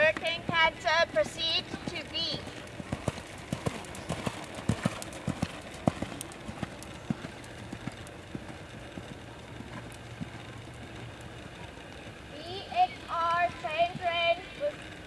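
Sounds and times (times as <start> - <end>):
horse hoofbeats on sand: 0.0 - 11.1.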